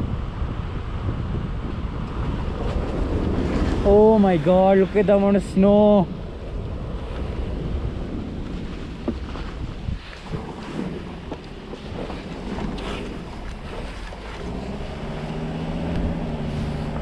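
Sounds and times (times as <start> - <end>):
tyres and engine rumble: 0.0 - 9.2, 12.7 - 17.0
wind rushing over microphone: 0.0 - 17.0.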